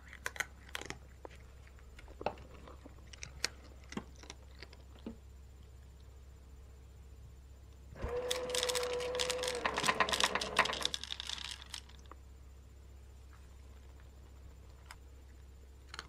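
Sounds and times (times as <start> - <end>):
feeder motor humming: 8.0 - 11.0
dry kibble clattering into bowl: 8.3 - 12.2.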